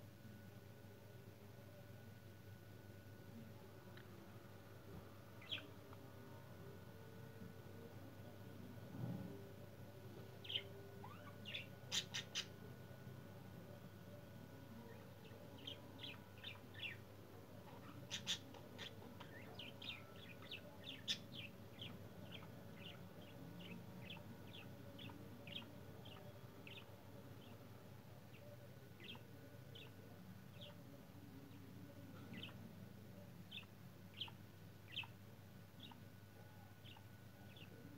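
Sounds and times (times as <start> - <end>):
budgerigars chirping: 10.4 - 12.5, 17.8 - 27.5, 32.3 - 32.6, 33.5 - 35.1.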